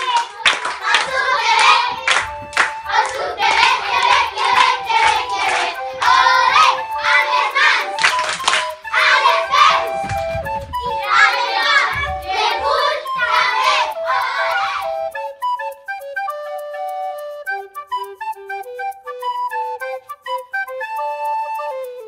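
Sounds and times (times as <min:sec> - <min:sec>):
children clapping hands: 0:00.0 - 0:14.9
children singing: 0:00.0 - 0:15.1
song playing: 0:00.0 - 0:21.2.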